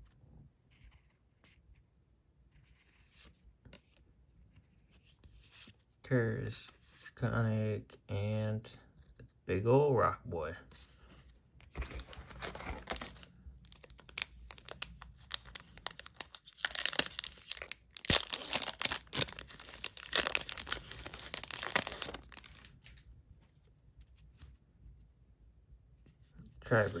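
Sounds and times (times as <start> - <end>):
wrapper tearing and crinkling: 11.8 - 23.0.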